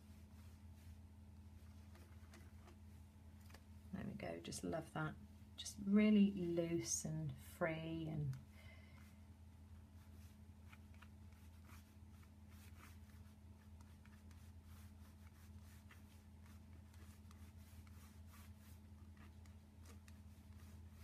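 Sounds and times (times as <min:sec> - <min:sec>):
low steady hum: 0:00.0 - 0:21.0
paint pen scratching and tapping: 0:01.7 - 0:02.8, 0:10.6 - 0:11.9, 0:15.2 - 0:21.0.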